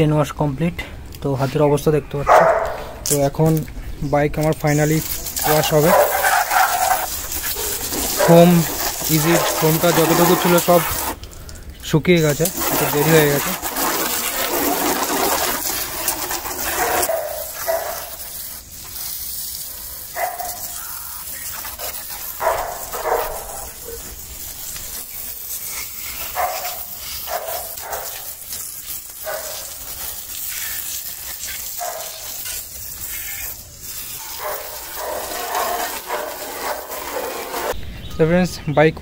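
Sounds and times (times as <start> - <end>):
water spray hissing and splashing: 4.4 - 37.8.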